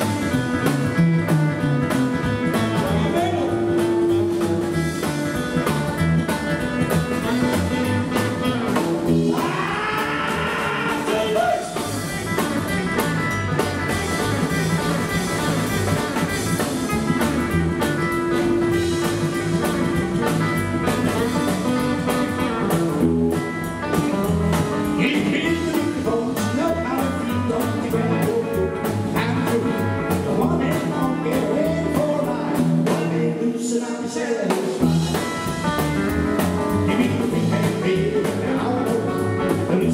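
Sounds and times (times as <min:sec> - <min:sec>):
double bass: 0:00.0 - 0:33.2, 0:34.8 - 0:39.9
drum kit: 0:00.0 - 0:33.7, 0:34.4 - 0:39.9
electric lead guitar: 0:00.0 - 0:39.9.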